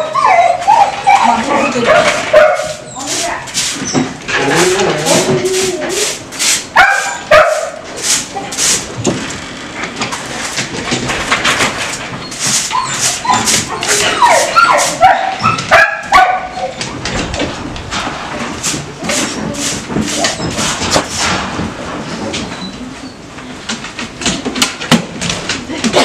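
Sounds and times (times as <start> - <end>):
dogs whining and yipping: 0.0 - 3.1, 3.8 - 6.2, 12.1 - 17.2.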